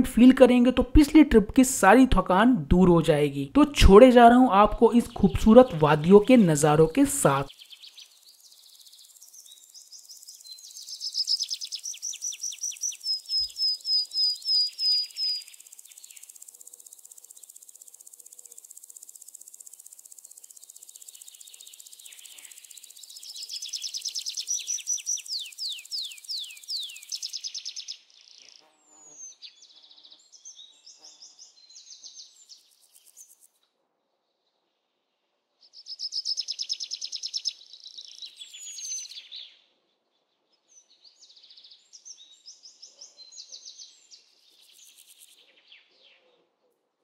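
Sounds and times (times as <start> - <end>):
birds chirping rapidly: 1.6 - 17.7, 20.1 - 29.7
high insect drone: 7.5 - 10.7, 14.7 - 27.6.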